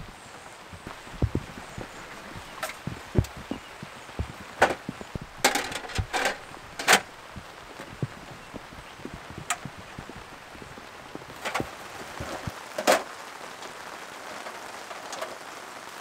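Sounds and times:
sharp knocks: 0.8s - 10.2s
soft thuds: 0.8s - 12.5s.

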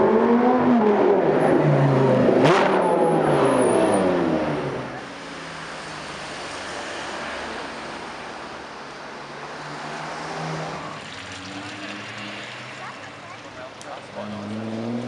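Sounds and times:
road noise: 0.0s - 15.0s
car engines running slowly: 10.8s - 15.0s.

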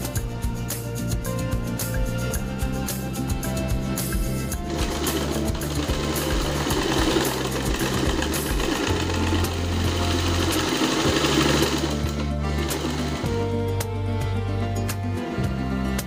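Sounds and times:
sewing machine stitching fabric: 4.6s - 13.4s.

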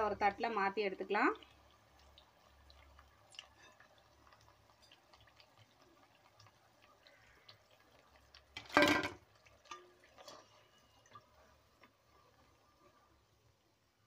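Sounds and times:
deep-frying sizzle and crackles: 0.0s - 14.0s.

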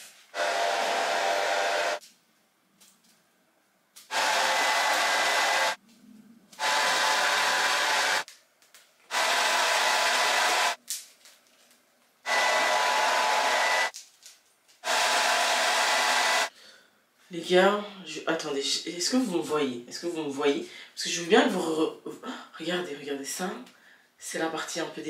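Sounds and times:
hair dryer blowing: 0.3s - 2.0s, 4.1s - 5.8s, 6.6s - 8.3s, 9.1s - 10.8s, 12.3s - 13.9s, 14.8s - 16.5s.

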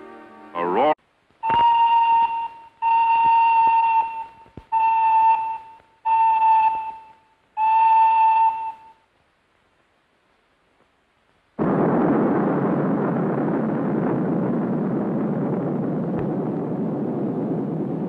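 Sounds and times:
steam locomotive whistle blasts: 1.4s - 9.0s.

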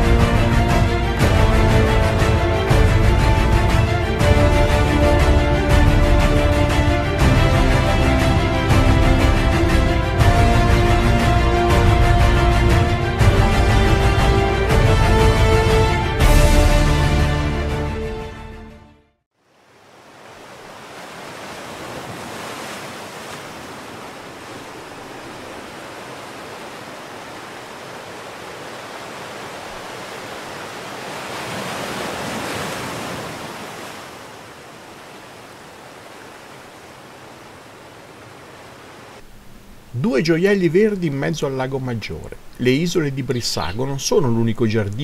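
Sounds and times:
lake waves washing: 19.4s - 45.0s.

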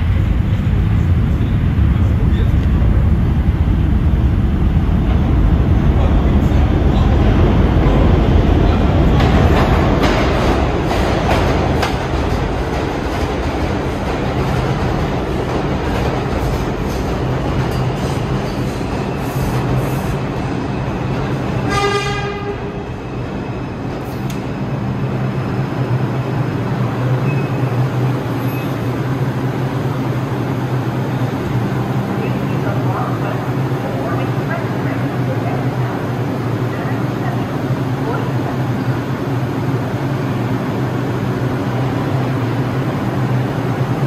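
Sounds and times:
steady train hum: 0.0s - 44.0s
subway train clattering: 0.0s - 44.0s
train horn blast: 21.6s - 22.8s.

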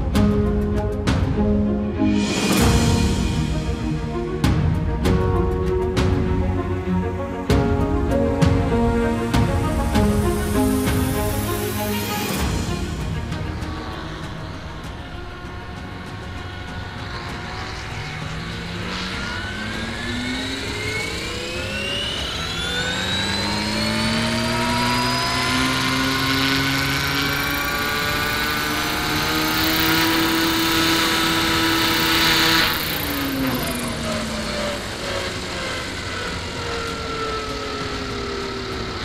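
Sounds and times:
model helicopter rotor whine: 9.8s - 39.0s.

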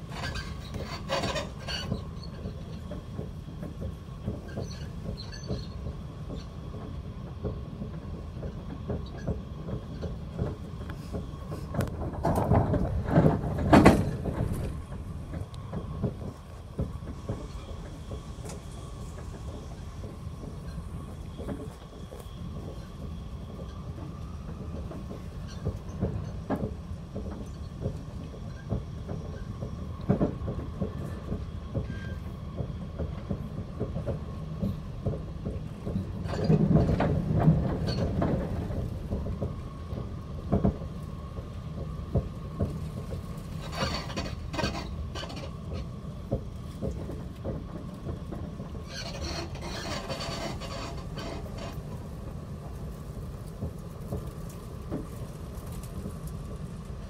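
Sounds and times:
rattles and clicks: 41.8s - 52.2s.

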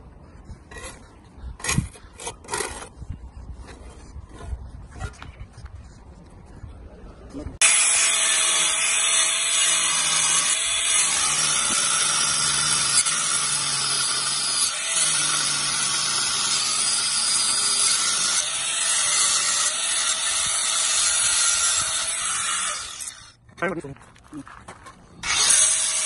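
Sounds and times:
angle grinder cutting stone: 7.6s - 23.3s, 25.2s - 26.0s.

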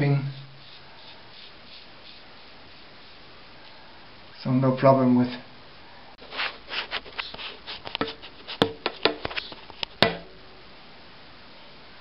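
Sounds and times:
razor scraping stubble: 6.2s - 10.0s.

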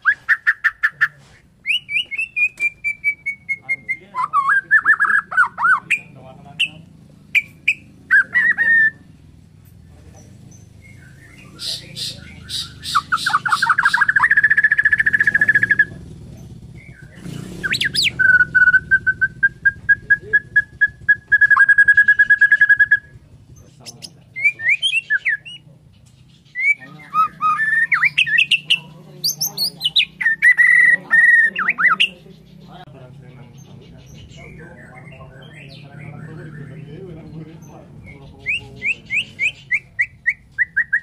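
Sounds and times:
bird singing trills and whistles: 0.0s - 9.3s, 10.0s - 41.0s.

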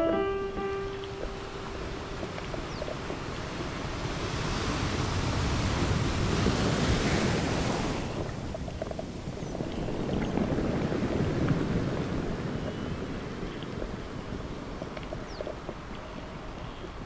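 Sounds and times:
underwater low rumble: 8.0s - 17.0s.

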